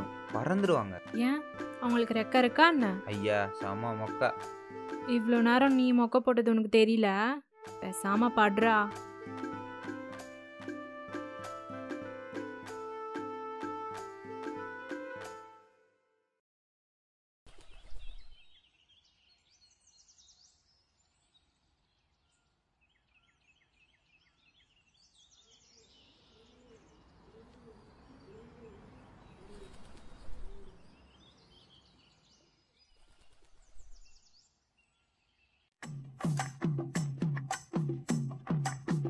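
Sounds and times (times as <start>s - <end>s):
small birds chirping: 17.6s - 35.8s
music with sharp percussion: 35.8s - 39.0s.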